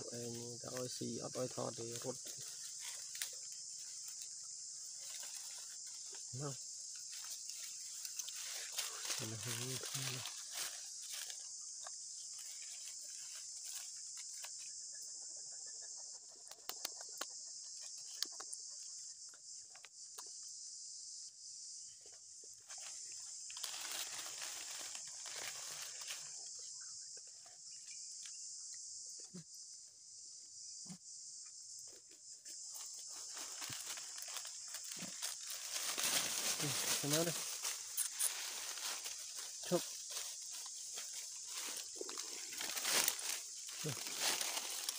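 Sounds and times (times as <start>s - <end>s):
rustling dry leaf litter: 0.0s - 11.6s, 12.2s - 14.6s, 22.6s - 26.5s, 32.8s - 44.9s
insects droning: 0.0s - 44.9s.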